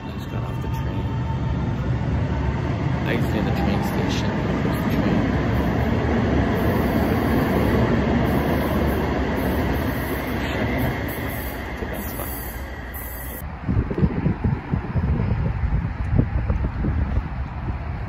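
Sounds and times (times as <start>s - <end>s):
light-rail train rumbling: 0.0s - 18.0s
wind buffeting microphone: 13.4s - 18.0s.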